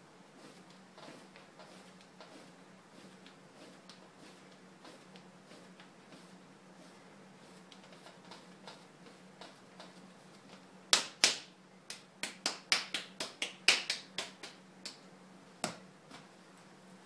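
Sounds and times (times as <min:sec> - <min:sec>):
hands slapping clay: 0:10.9 - 0:15.0.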